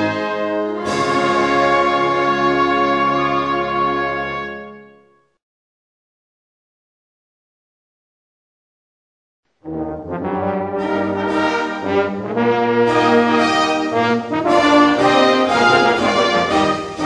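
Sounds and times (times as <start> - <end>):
brass band playing a hymn: 0.0 - 5.0, 9.6 - 17.0.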